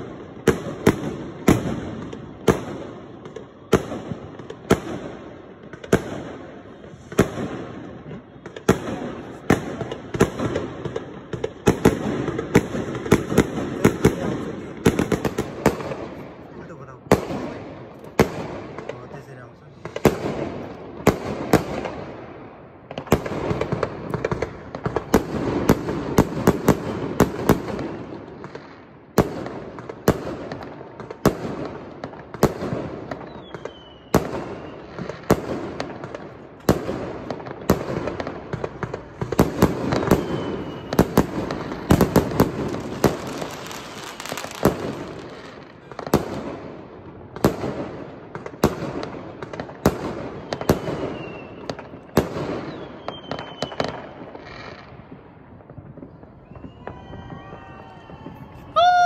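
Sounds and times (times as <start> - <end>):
distant fireworks crackle: 0.0 - 59.0
fireworks bursting: 0.0 - 59.0
falling firework whistles: 33.1 - 35.2, 39.3 - 45.6, 50.3 - 54.8, 56.1 - 59.0.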